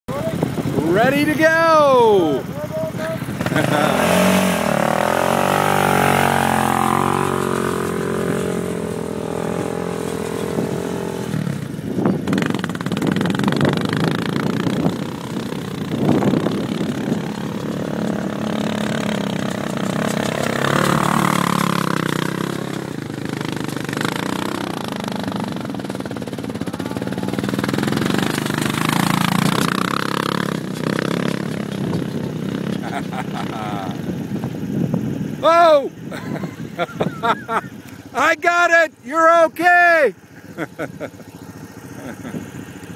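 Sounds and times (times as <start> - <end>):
atv engine revving: 0.1 - 42.9.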